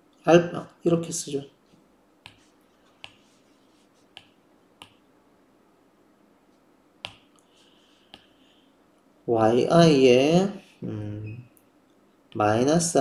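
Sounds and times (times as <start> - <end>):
stylus tapping on a tablet screen: 2.2 - 3.4, 4.0 - 5.0, 7.0 - 7.3, 8.0 - 8.4.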